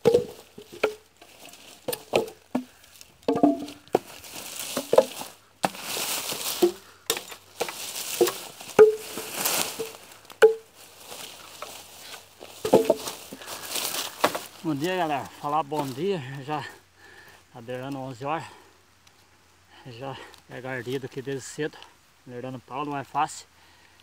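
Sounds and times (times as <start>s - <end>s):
hatchet striking logs: 0.0s - 10.8s, 12.6s - 14.6s
dry leaves and bark rustling: 0.0s - 19.4s.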